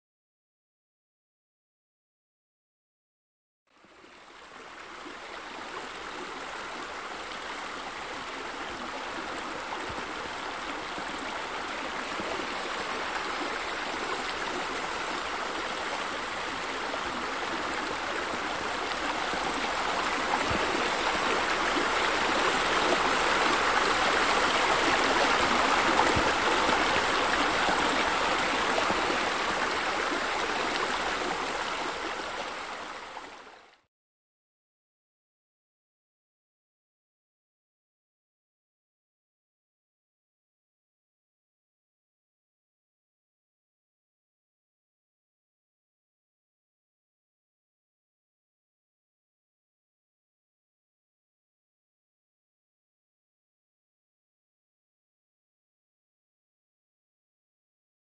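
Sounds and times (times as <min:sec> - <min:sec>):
running water flowing: 0:03.8 - 0:33.8.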